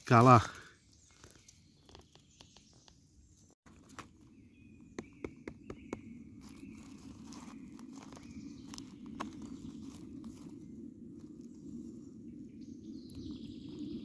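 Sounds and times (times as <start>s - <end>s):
footsteps on forest floor: 0.0s - 2.8s, 5.0s - 10.7s.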